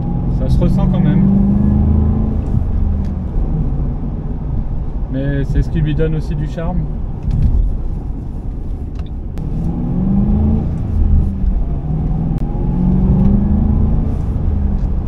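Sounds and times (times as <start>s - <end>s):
car engine revving: 0.0s - 5.0s, 9.4s - 15.0s.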